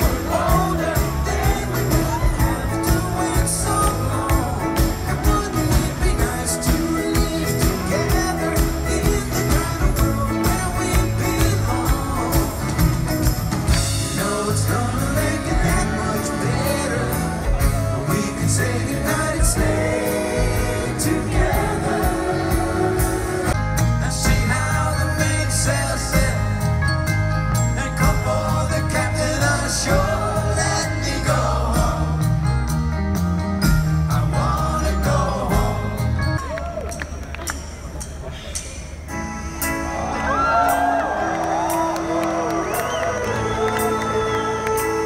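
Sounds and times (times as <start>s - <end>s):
lead singer singing: 0.0s - 26.8s, 27.7s - 32.4s, 41.8s - 45.0s
live band playing: 0.0s - 45.0s.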